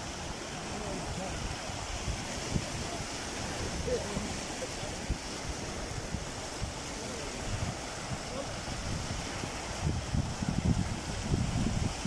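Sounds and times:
waves breaking on stony shore: 0.0 - 12.0
wind buffeting microphone: 0.0 - 12.0.

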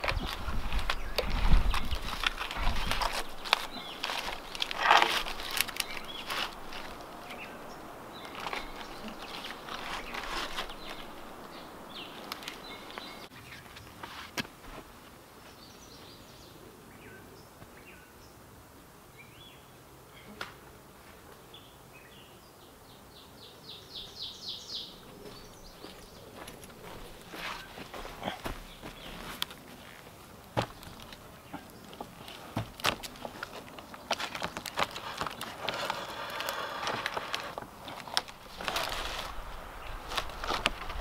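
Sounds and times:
birds chirping: 0.0 - 14.0, 15.4 - 18.4, 21.4 - 41.0
dry leaves and sticks crackling: 0.0 - 14.9, 24.9 - 41.0.

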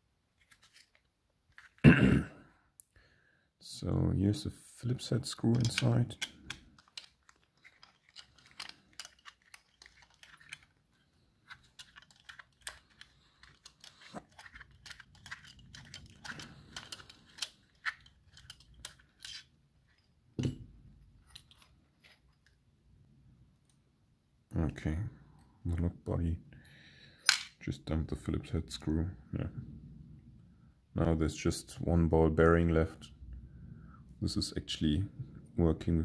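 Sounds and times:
screwdriver clicking and scraping: 5.4 - 20.5, 21.2 - 22.6.

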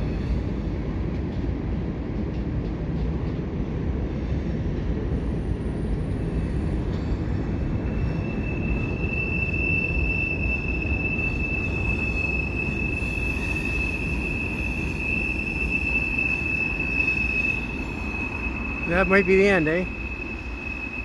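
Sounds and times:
train cars rumbling: 0.0 - 21.0
high-pitched wheel squeal: 7.7 - 21.0.

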